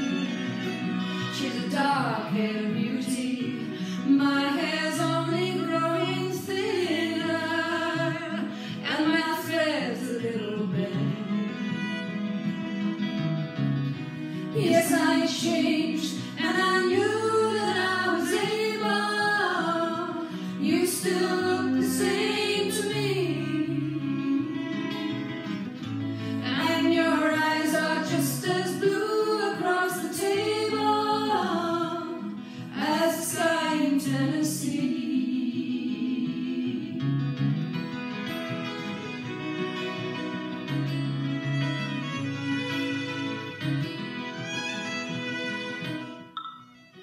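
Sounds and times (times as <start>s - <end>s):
guitar accompaniment: 0.0s - 47.0s
woman singing a slow ballad: 1.3s - 11.6s, 14.5s - 25.4s, 26.3s - 37.2s.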